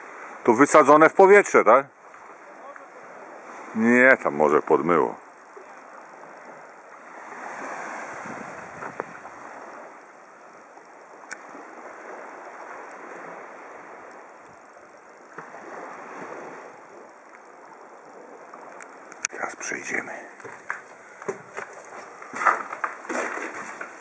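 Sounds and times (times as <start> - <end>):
small waves washing on concrete: 0.0 - 24.0
faint clicks: 18.7 - 19.4.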